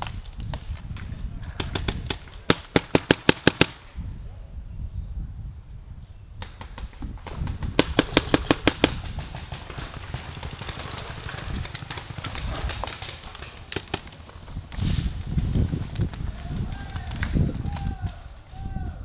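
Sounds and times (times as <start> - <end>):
paintball marker shots: 1.6 - 3.8.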